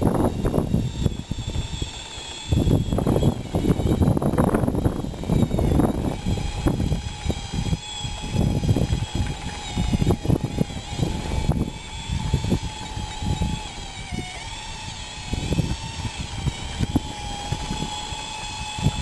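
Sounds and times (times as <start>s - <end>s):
toy motor whine: 0.0s - 19.0s.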